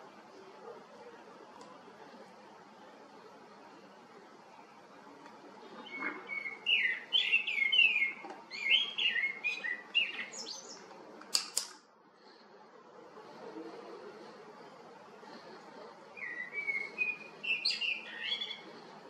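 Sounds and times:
bird chirping: 5.7s - 10.9s, 16.1s - 18.9s
sharp clicks: 10.8s - 11.9s.

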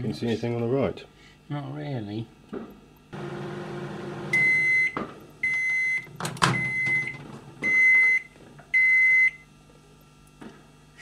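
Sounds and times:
microwave oven humming: 0.0s - 11.0s
timer beeps: 4.4s - 7.1s.

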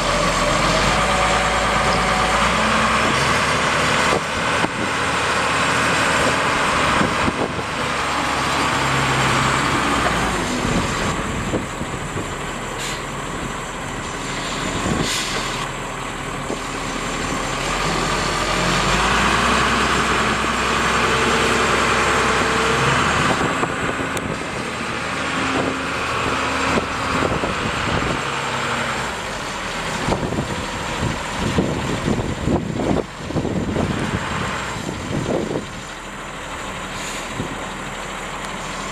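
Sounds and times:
diesel excavator engine revving: 0.0s - 38.9s.

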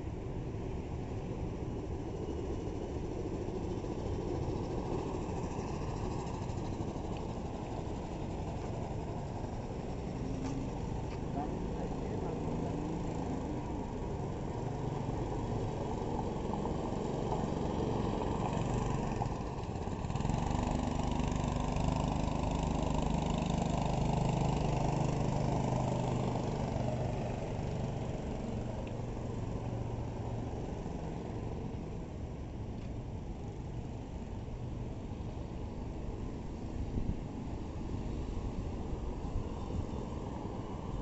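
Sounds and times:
go-kart engine: 0.0s - 41.0s.

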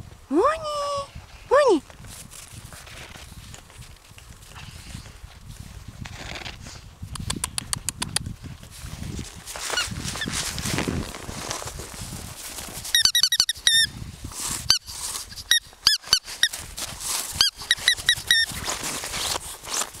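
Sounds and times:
crunching in snow: 1.4s - 6.8s, 8.7s - 13.0s, 14.0s - 20.0s
dogs yipping: 17.4s - 18.5s.

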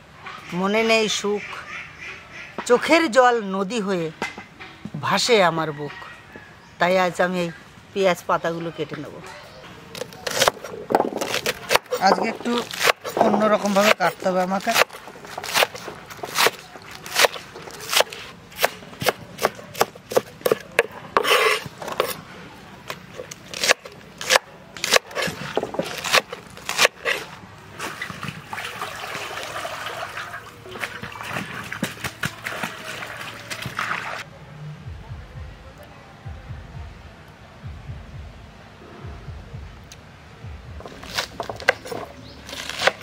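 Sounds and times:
knife chopping on wooden board: 10.0s - 22.2s, 23.2s - 27.3s
water splashing in metal bowl: 27.8s - 34.2s.

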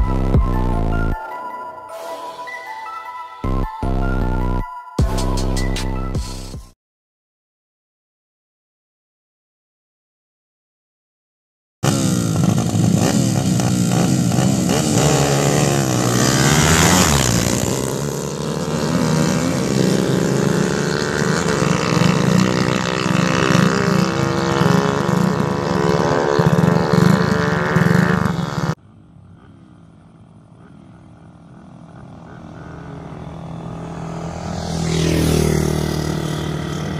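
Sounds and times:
motorcycle engines racing: 11.8s - 36.9s.

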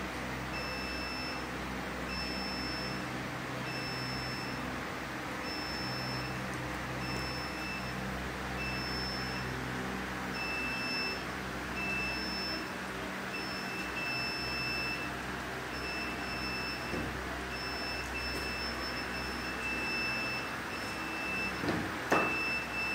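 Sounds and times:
machine hum and hiss: 0.0s - 22.9s
high-pitched alarm beeping: 0.6s - 1.4s, 2.1s - 3.0s, 3.7s - 4.6s, 5.4s - 6.4s, 7.0s - 8.0s, 8.6s - 9.6s, 10.3s - 11.2s, 11.8s - 12.7s, 13.3s - 15.1s, 15.7s - 22.9s.

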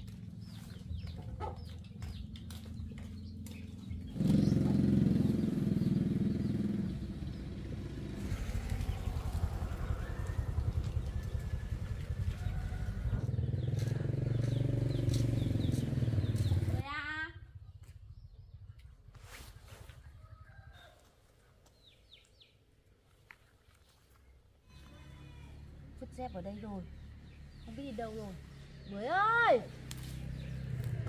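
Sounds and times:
birds chirping: 0.0s - 19.1s, 20.2s - 31.0s
small engine running: 1.9s - 16.8s.

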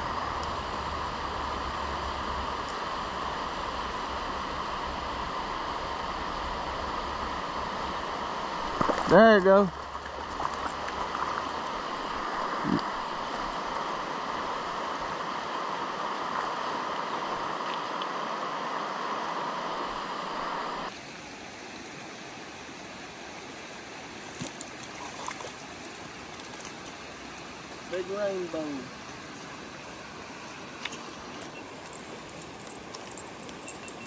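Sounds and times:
river rushing over stones: 0.0s - 34.0s
fish splashing: 24.2s - 27.6s.

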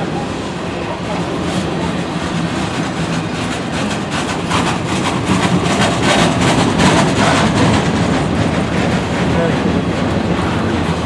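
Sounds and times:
train wheels rumbling on rail: 0.0s - 11.0s
rapid clicks of wheels: 3.0s - 9.5s.

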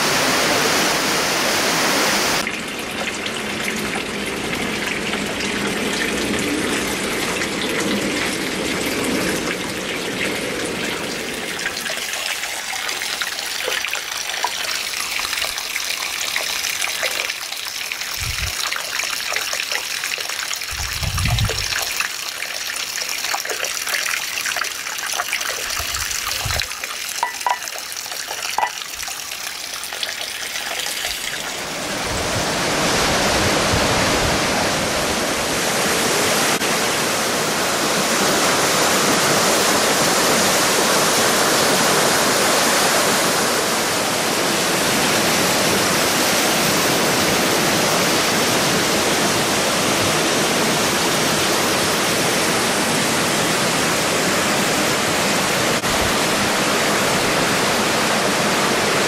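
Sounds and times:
waterfall rushing into pool: 0.0s - 59.0s
water trickling into stone basin: 2.4s - 31.6s.

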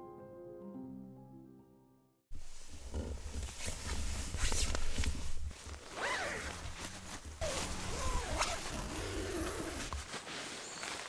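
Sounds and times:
tent fabric rustling: 2.3s - 11.0s
zipper being pulled: 2.6s - 10.3s.

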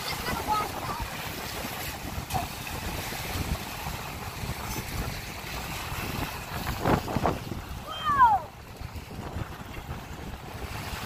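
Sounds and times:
wind buffeting the microphone: 0.0s - 11.0s.

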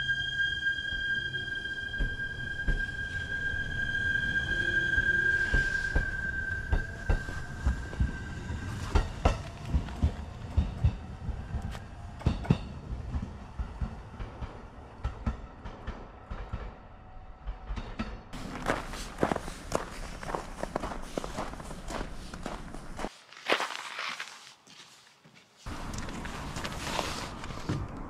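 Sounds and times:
electric train whine: 0.0s - 22.6s
train wheels clacking on rails: 5.2s - 20.5s.

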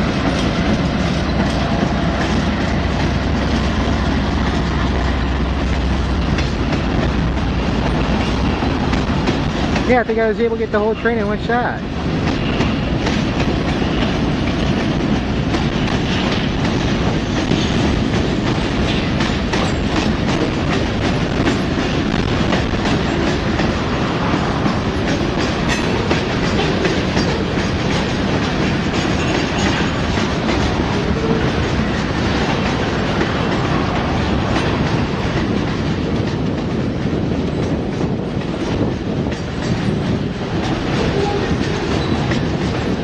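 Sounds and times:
wheels clicking over rail joints: 0.0s - 10.8s, 11.9s - 43.0s
steel wheels rumbling on rail: 0.0s - 43.0s.

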